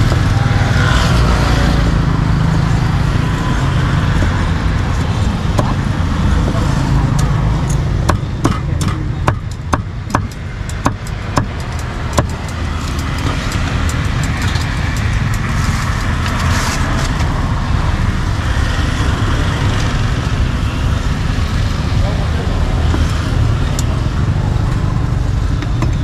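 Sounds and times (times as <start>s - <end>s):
road traffic rumble: 0.0s - 26.0s
cleaver chopping on wooden board: 8.0s - 12.4s.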